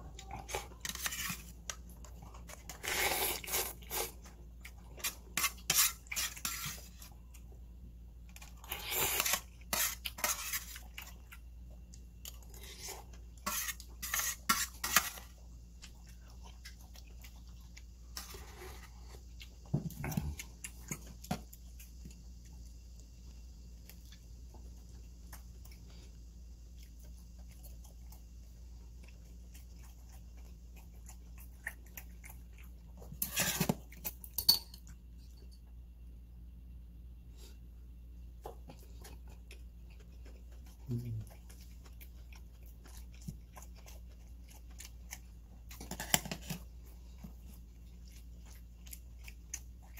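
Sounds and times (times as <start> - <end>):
chewing: 0.0 - 7.6, 8.2 - 35.5, 38.4 - 49.9.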